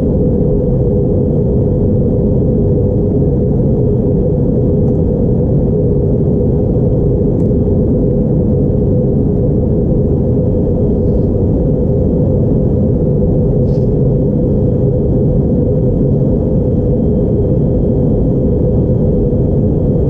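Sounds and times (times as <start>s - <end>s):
aircraft engine and airflow rumble: 0.0s - 20.0s.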